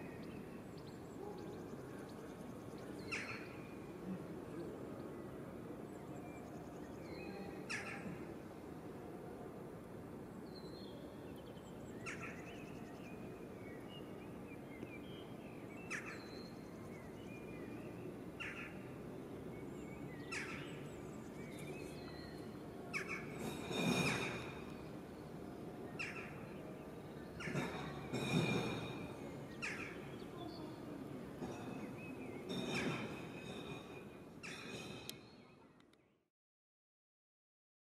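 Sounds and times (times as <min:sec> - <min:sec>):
sharp bird calls: 0:15.8 - 0:17.6, 0:19.9 - 0:25.1, 0:25.9 - 0:26.7, 0:27.3 - 0:30.6.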